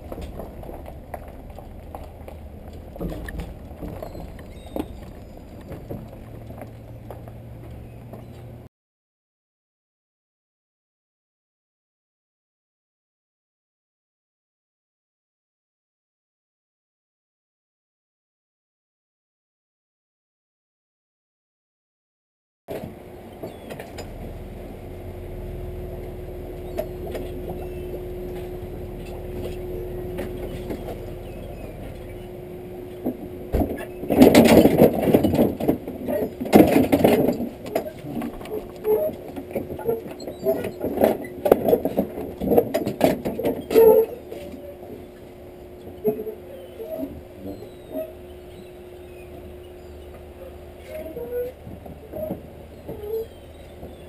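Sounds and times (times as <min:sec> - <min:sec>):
boat trailer rattling and knocking: 0:00.0 - 0:08.6, 0:22.7 - 0:54.0
steady low hum: 0:00.0 - 0:08.7, 0:22.8 - 0:54.0
tyres on gravel and engine rumble: 0:00.0 - 0:08.7, 0:22.7 - 0:54.0.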